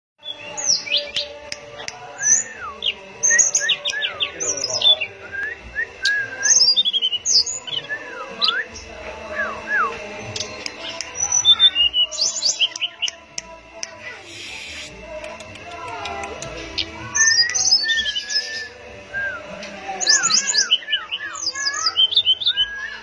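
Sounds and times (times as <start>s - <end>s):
bird singing whistled notes: 16.8s - 23.0s.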